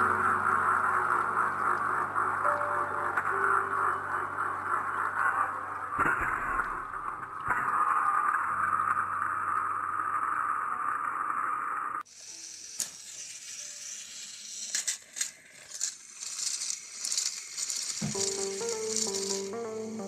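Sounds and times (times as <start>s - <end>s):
melody: 0.0s - 5.7s, 18.0s - 20.0s
hiss: 9.9s - 19.3s
toy train motor whining: 10.0s - 19.5s
plastic trains rattling on track: 12.1s - 18.4s.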